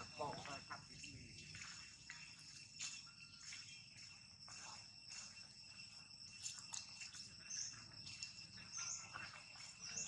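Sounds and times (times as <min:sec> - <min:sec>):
high-pitched insect chorus: 0:00.0 - 0:10.0.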